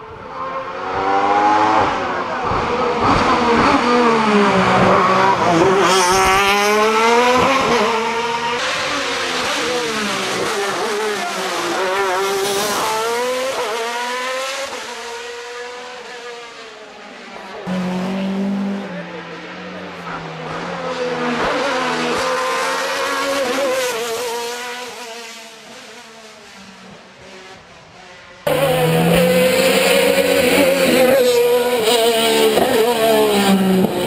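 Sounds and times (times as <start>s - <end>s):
racing engine at high revs: 0.0s - 34.0s.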